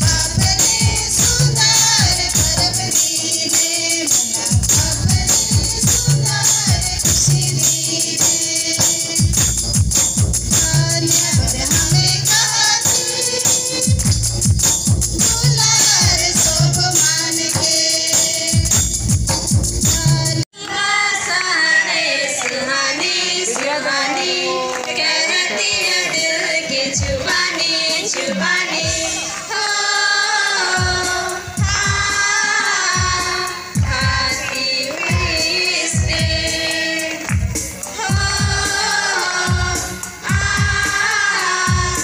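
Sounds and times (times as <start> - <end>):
hand drums: 0.0 - 20.4
jingling percussion: 0.0 - 20.4, 23.0 - 42.0
children singing a hymn: 20.6 - 37.3, 37.9 - 42.0.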